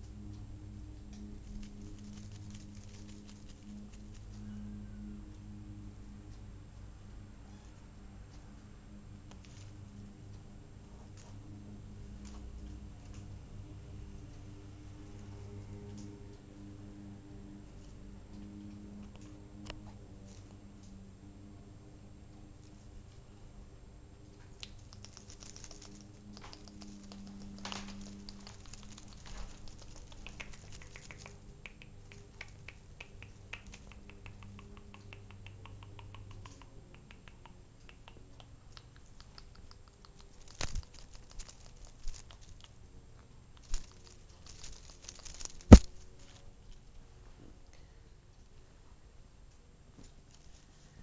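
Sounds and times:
kitten rustling on cushion: 0:43.6 - 0:46.5.

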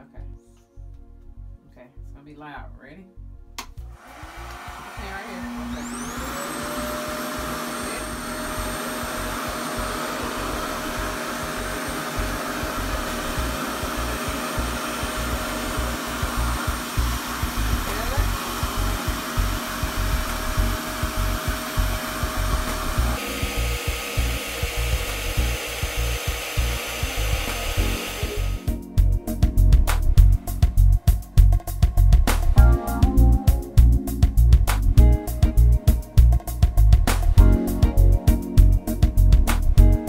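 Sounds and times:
motor whine: 0:03.8 - 0:28.7.

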